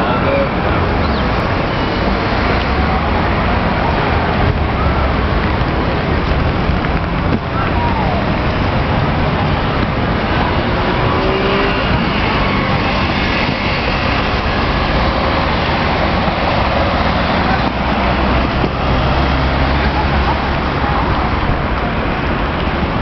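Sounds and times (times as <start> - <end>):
car engines and tyre noise: 0.0 - 23.0.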